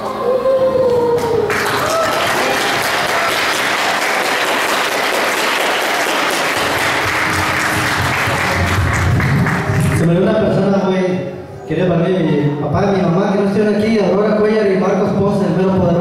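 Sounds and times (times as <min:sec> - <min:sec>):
crowd applauding: 0:01.0 - 0:10.2.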